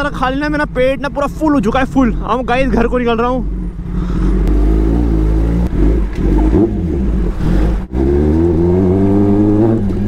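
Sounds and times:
motorcycle engine pulling away: 3.4s - 10.0s.

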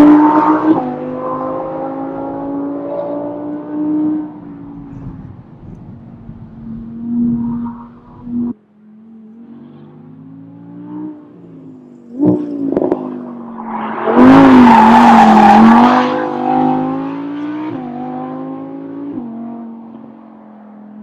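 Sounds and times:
rush of passing noise: 12.2s - 17.2s.

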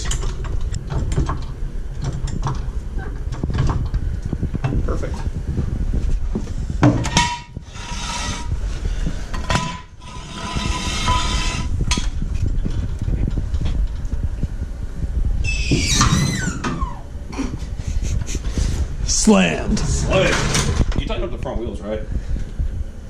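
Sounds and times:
metal clanks and scrapes: 6.8s - 8.6s, 9.2s - 14.0s
falling high squeak: 15.4s - 17.1s.

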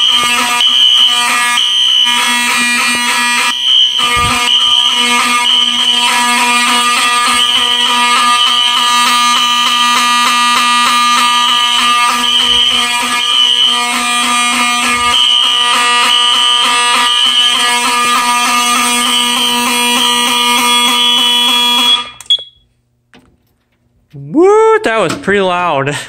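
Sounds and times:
fire alarm horns: 0.0s - 22.7s.

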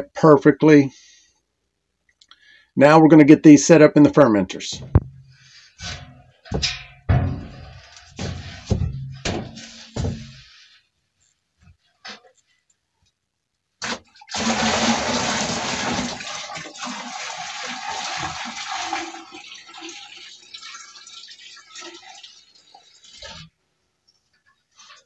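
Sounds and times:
liquid pouring into bucket: 13.8s - 23.5s
liquid trickling and dripping: 16.5s - 23.6s.

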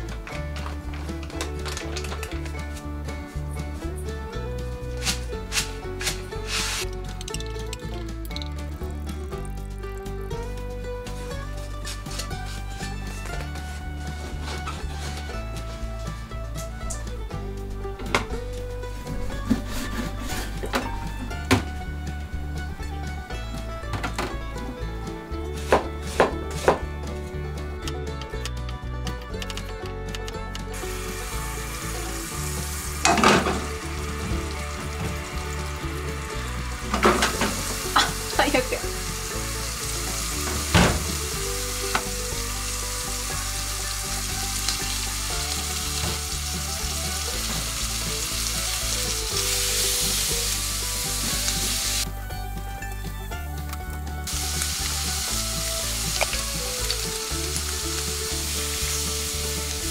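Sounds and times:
onion sizzling in a frying pan: 0.1s - 17.5s, 30.8s - 59.9s
sharp knocks and clatters: 17.8s - 30.8s, 32.9s - 38.2s.

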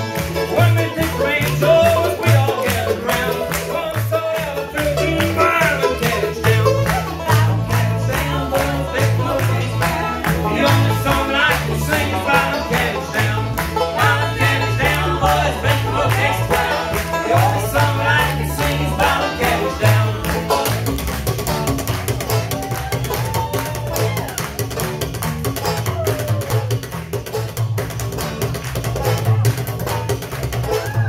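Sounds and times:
upright bass walking notes: 0.0s - 22.8s
bluegrass band playing: 0.0s - 31.0s
several voices singing: 0.5s - 20.8s.

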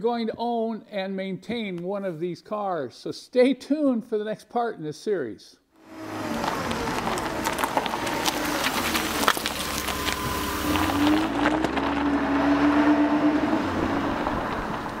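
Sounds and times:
engine running: 5.8s - 15.0s.

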